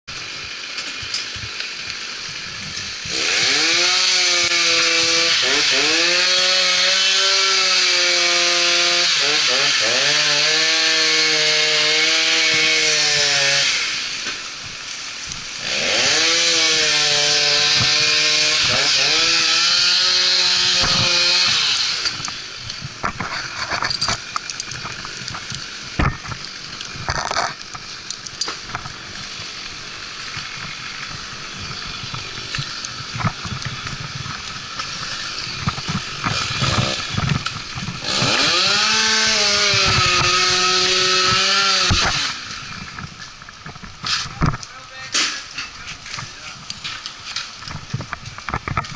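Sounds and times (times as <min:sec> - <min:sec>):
chainsaw cutting wood: 0:00.2 - 0:45.3
knocks and scrapes: 0:20.5 - 0:29.5, 0:30.3 - 0:38.8, 0:39.6 - 0:48.9.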